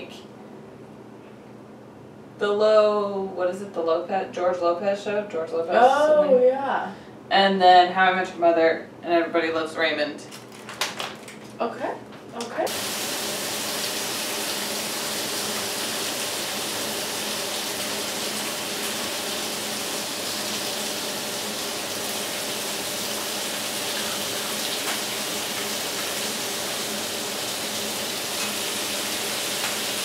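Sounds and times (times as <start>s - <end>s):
food sizzling in frying pan: 12.7s - 30.0s.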